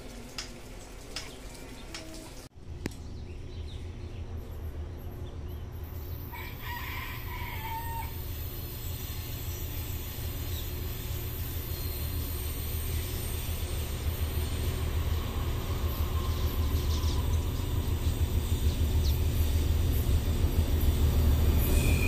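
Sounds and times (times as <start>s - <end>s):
freight train rumble: 0.0s - 22.0s
rooster crowing: 6.3s - 8.3s.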